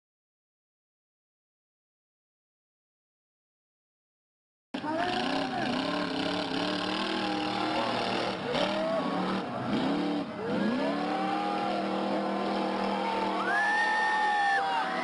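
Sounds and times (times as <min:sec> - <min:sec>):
truck engine revving: 0:04.8 - 0:15.0.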